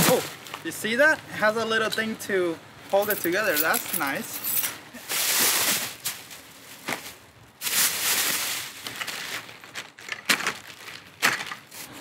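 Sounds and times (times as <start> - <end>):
plastic wrapping rustling: 5.0 - 12.0.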